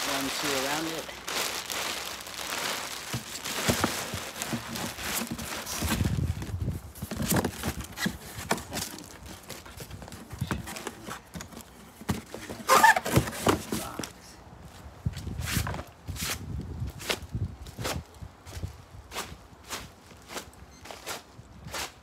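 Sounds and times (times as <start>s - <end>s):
plastic sheeting crinkling: 0.0s - 11.2s, 12.6s - 14.0s.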